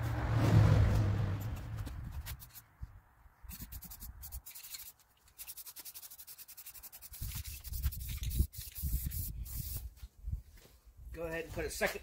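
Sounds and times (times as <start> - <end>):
spray paint can hissing: 3.5 - 9.9.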